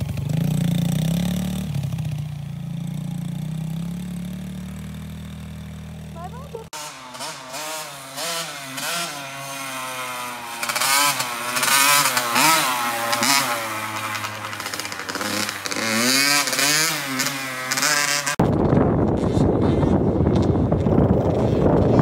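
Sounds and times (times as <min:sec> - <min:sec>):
dirt bike engine revving: 0:00.0 - 0:22.0
wind rumbling on microphone: 0:18.4 - 0:22.0.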